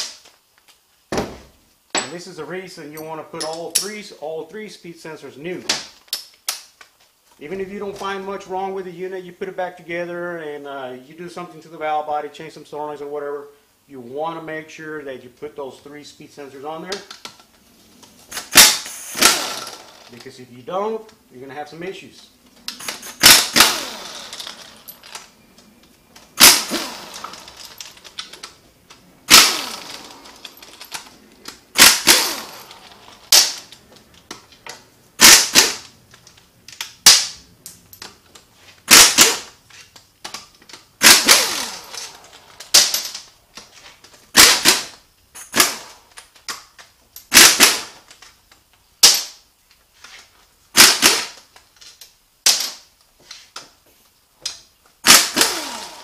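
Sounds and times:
impact wrench hammering: 18.3s - 20.1s, 22.7s - 25.2s, 26.4s - 28.4s, 29.3s - 31.0s, 31.7s - 33.8s, 35.2s - 35.9s, 38.9s - 39.6s, 41.0s - 43.3s, 44.3s - 45.9s, 47.3s - 47.9s, 55.1s - 56.0s.

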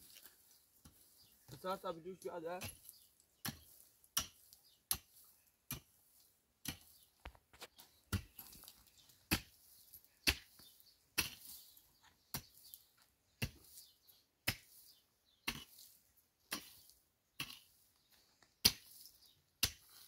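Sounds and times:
pickaxe striking stony ground: 2.6s - 5.1s, 6.6s - 9.6s, 10.2s - 11.7s, 13.4s - 14.8s, 15.4s - 15.9s, 16.5s - 17.8s, 18.6s - 20.0s.

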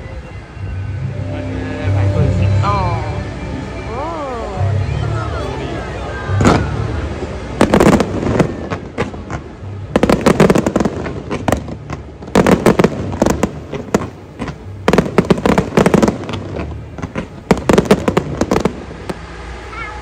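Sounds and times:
fireworks bangs and crackles: 1.6s - 20.0s.

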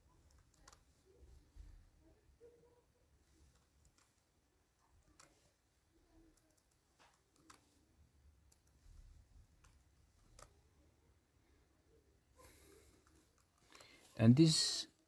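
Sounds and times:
computer keyboard and mouse clicks: 0.1s - 0.8s, 6.3s - 7.7s, 9.6s - 10.6s.

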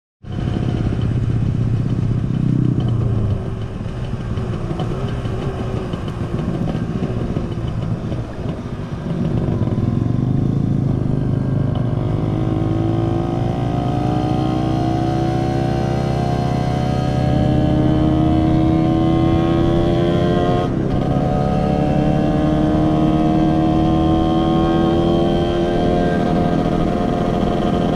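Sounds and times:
motorcycle engine running: 0.2s - 27.9s.

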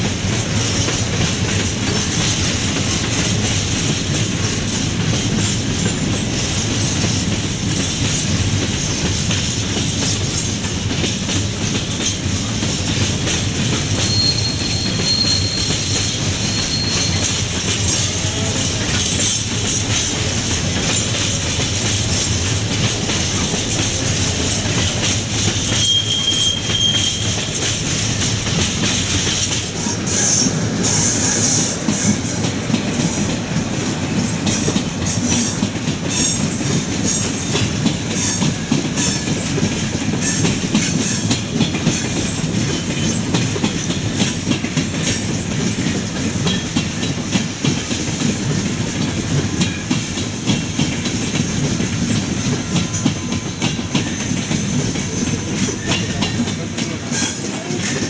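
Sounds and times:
train wheels clicking over joints: 0.0s - 58.0s
high wheel squeal: 13.9s - 17.5s, 25.6s - 27.7s.

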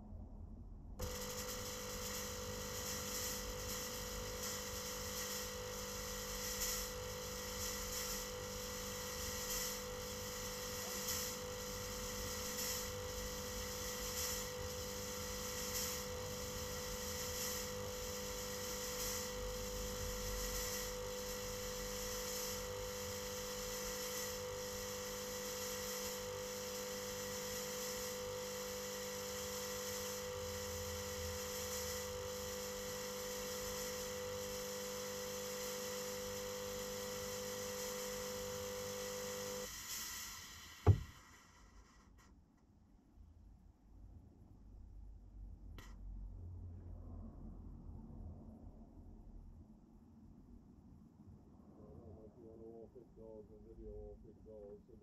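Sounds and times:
fogging machine electric hum: 0.0s - 42.1s.

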